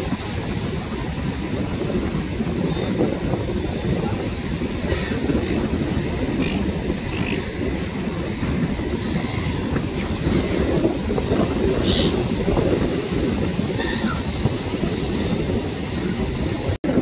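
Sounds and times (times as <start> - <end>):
beach surf: 0.0 - 17.0
wind rumbling on microphone: 0.0 - 17.0
gulls calling: 0.9 - 12.7, 13.7 - 16.7.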